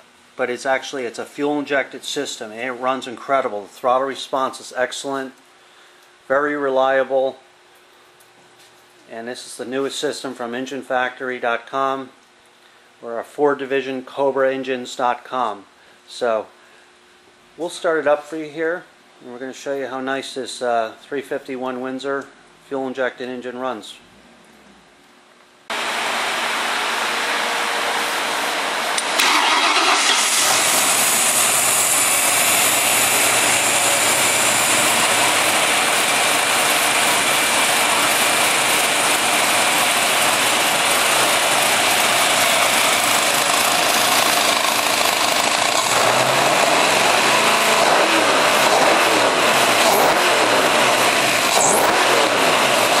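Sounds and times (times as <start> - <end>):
car engine starting and idling: 25.7 - 53.0.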